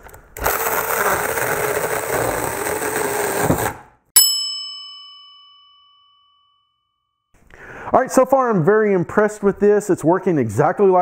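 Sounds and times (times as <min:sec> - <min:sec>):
electric chainsaw cutting log: 0:00.4 - 0:03.9
bell-like ding: 0:04.2 - 0:07.2.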